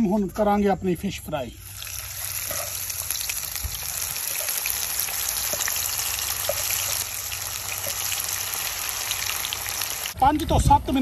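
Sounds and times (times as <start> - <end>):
fish deep-frying in hot oil: 1.6 - 10.2
oil popping and crackling: 1.6 - 10.2.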